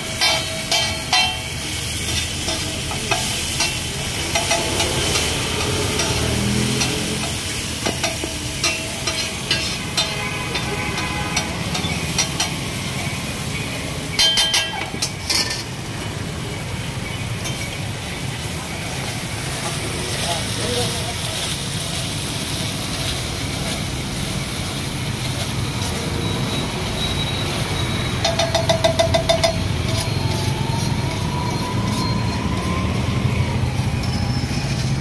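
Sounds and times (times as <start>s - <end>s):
food sizzling on flat pan: 0.0s - 35.0s
metal spatula scraping pan: 0.2s - 13.0s.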